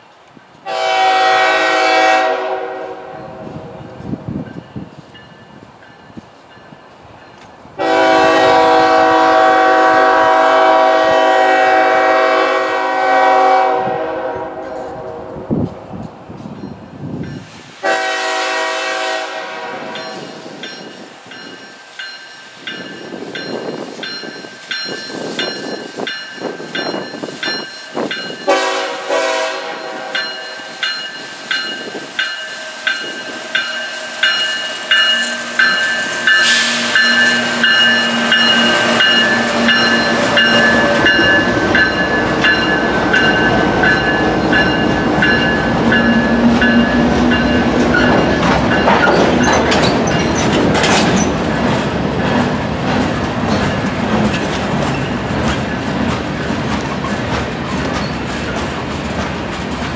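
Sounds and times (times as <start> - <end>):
passing train rumbling: 0.0 - 59.9
locomotive air horn blasts: 0.7 - 3.9, 7.8 - 15.5, 17.8 - 20.1, 28.5 - 30.8.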